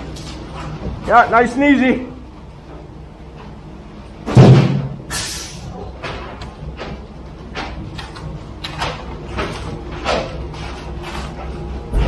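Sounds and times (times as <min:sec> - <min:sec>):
loud thump: 0:04.3 - 0:05.0
short hiss: 0:05.1 - 0:05.6.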